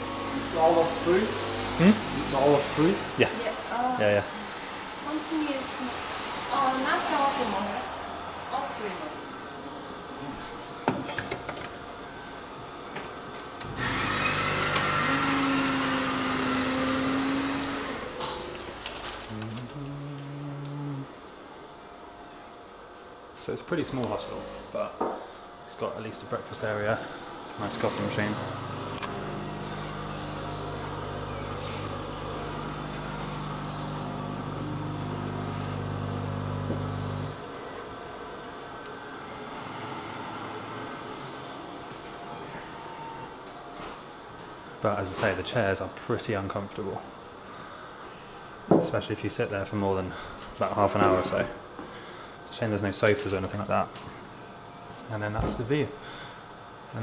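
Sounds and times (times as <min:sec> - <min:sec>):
coffee machine whirring: 0:00.0 - 0:03.3, 0:11.1 - 0:21.1, 0:26.9 - 0:37.9, 0:38.6 - 0:43.5
short beep: 0:37.4 - 0:38.5.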